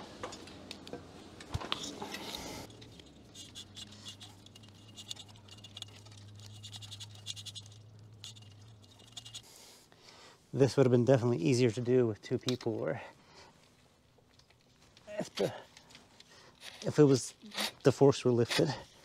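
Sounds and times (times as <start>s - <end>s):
wire scratching through tubing: 1.7s - 9.6s, 15.1s - 19.0s.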